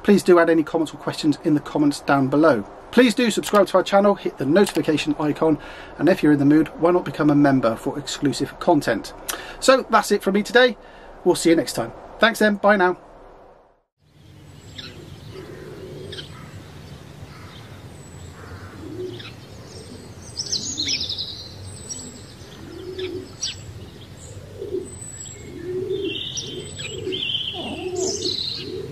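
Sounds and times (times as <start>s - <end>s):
small birds chirping: 14.0s - 28.9s
dove cooing: 14.8s - 16.7s, 18.4s - 21.3s, 21.9s - 28.9s.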